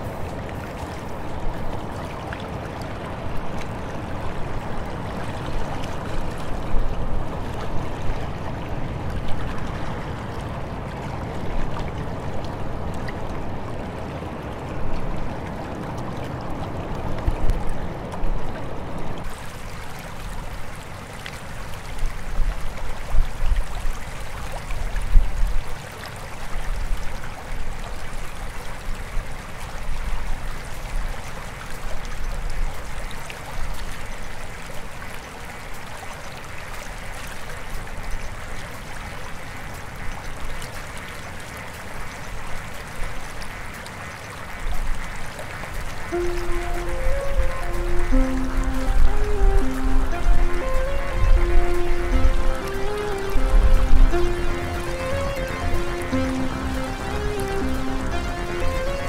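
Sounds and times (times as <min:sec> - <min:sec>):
river water rushing: 0:00.0 - 0:59.0.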